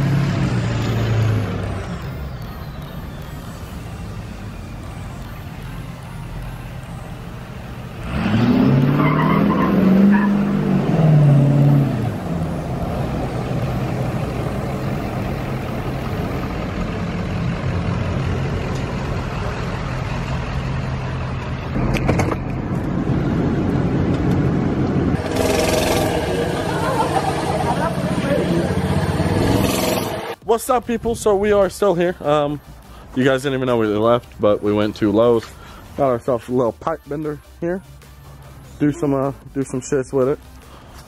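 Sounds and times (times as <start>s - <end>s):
truck engine revving: 0.0s - 30.4s.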